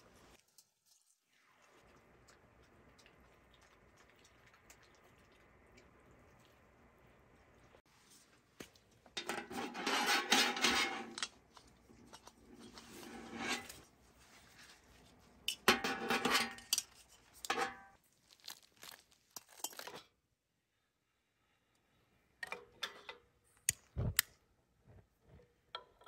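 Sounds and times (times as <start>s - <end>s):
metal gas canister clinking: 9.1s - 11.4s, 15.5s - 17.9s.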